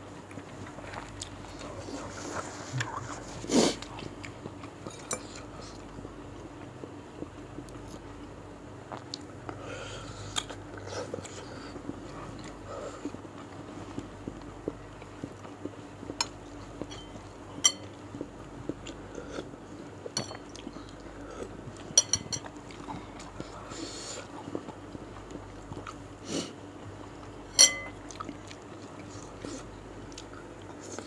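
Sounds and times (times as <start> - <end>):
chewing: 0.3 - 5.9, 8.9 - 23.6, 24.2 - 26.0, 28.0 - 31.0
cutlery clinking against bowl: 16.2 - 18.0, 20.2 - 20.5, 22.0 - 22.5, 27.5 - 28.0.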